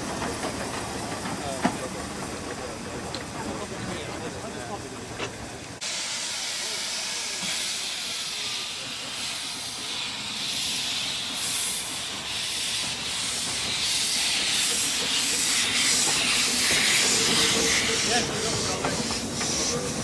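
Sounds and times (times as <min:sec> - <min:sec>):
steam locomotive exhaust beats: 0:05.8 - 0:20.0.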